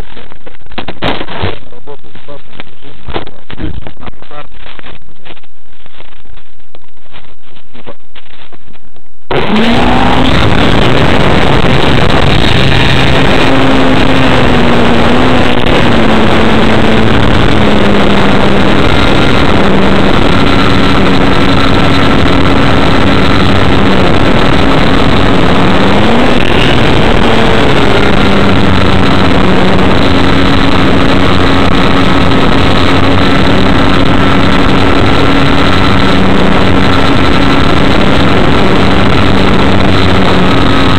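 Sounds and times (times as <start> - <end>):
model airplane motor buzzing: 9.3 - 40.9.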